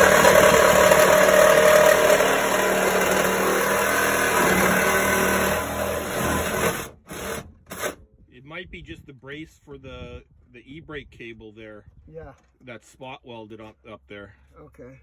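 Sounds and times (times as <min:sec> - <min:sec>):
reciprocating saw cutting metal: 0:00.0 - 0:08.0.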